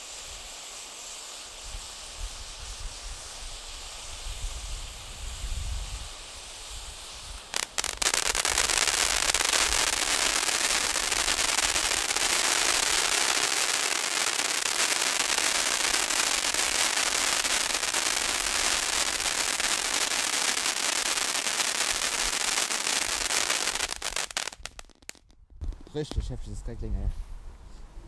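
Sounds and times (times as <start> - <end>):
firework fountain crackling: 0.0 - 26.7
firework hiss: 0.0 - 26.7.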